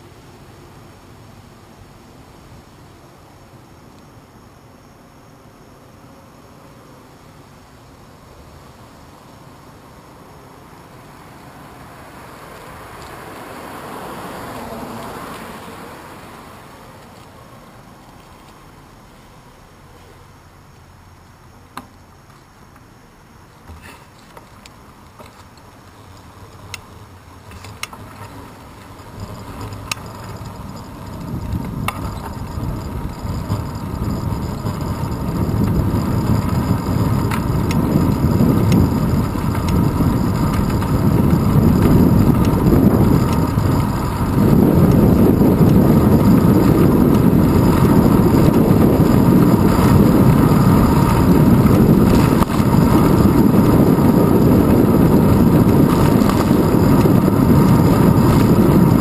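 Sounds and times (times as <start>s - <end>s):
wind buffeting microphone: 27.8s - 59.0s.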